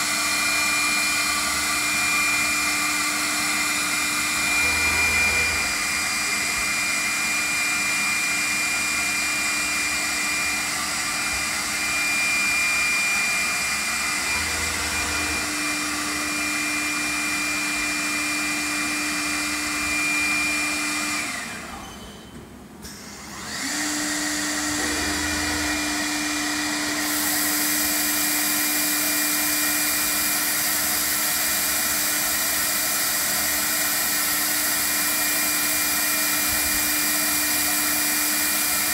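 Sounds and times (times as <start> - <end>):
machine spindle whine: 0.0 - 38.9
dust extraction rushing: 11.6 - 16.7.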